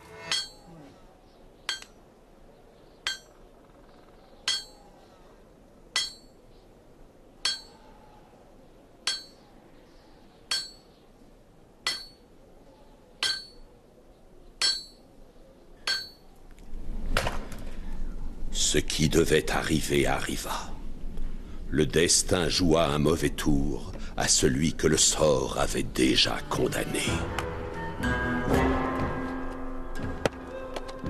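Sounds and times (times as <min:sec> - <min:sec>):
metal clinking on metal: 0:00.3 - 0:00.7, 0:01.7 - 0:01.9, 0:03.1 - 0:03.4, 0:04.5 - 0:04.8, 0:06.0 - 0:06.4, 0:07.4 - 0:07.8, 0:09.1 - 0:09.4, 0:10.5 - 0:10.9, 0:11.9 - 0:12.2, 0:13.2 - 0:13.6, 0:14.6 - 0:15.0, 0:15.9 - 0:16.2.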